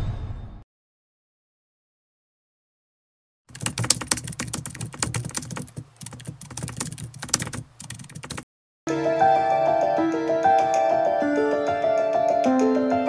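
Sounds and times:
keystroke clicks: 3.5s - 8.4s
intro music with held notes: 8.9s - 13.0s.

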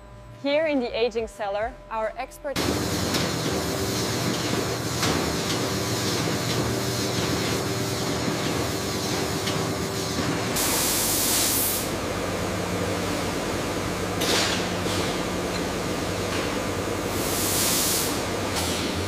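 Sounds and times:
machinery hum and hiss: 0.0s - 19.0s
loud hiss: 10.6s - 11.9s, 17.1s - 18.3s.

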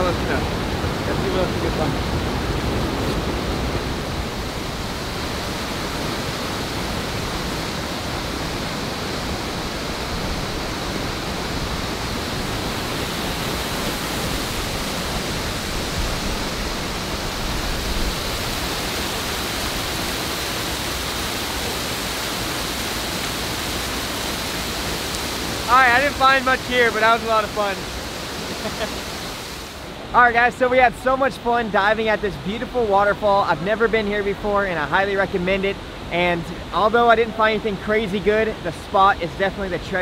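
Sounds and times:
waterfall splashing into pool: 2.7s - 29.8s.

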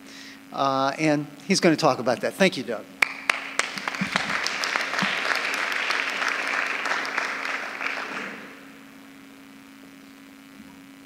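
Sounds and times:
low electrical hum: 0.0s - 11.0s
audience applauding: 3.0s - 8.7s.

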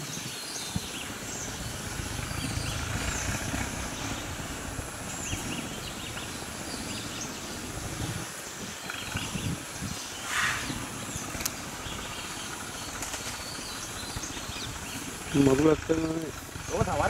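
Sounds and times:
birds chirping: 0.0s - 17.0s
low rumble: 0.8s - 8.3s.

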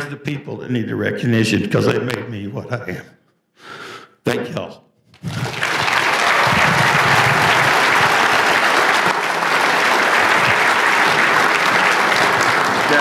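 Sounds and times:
audience applauding: 5.2s - 13.0s
crowd cheering: 5.2s - 13.0s.

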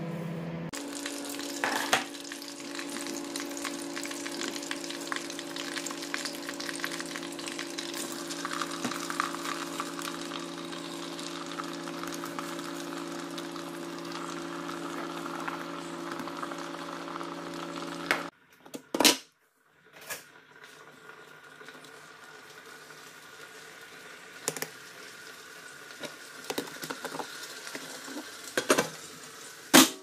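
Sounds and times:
hot oil sizzling and crackling: 0.8s - 18.3s, 20.2s - 30.0s.

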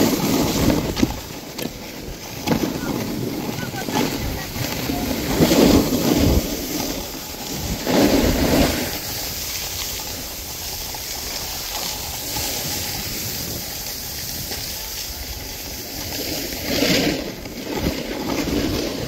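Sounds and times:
snowboard scraping over snow: 0.0s - 19.0s.

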